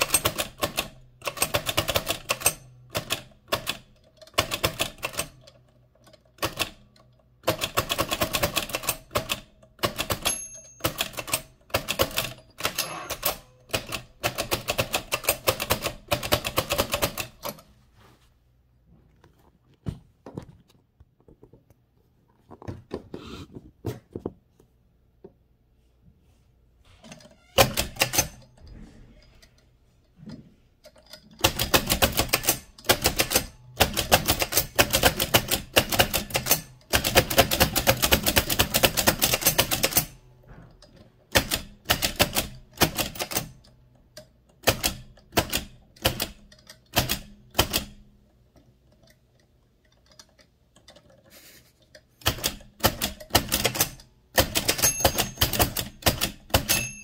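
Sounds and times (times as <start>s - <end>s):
typewriter clacking: 0.0s - 17.6s, 27.6s - 28.5s, 31.0s - 40.2s, 41.3s - 43.7s, 52.2s - 57.0s.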